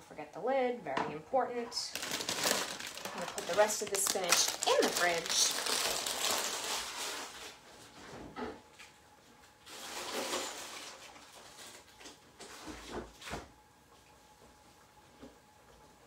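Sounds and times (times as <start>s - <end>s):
plastic bag rustling: 1.8s - 8.0s, 9.6s - 12.7s.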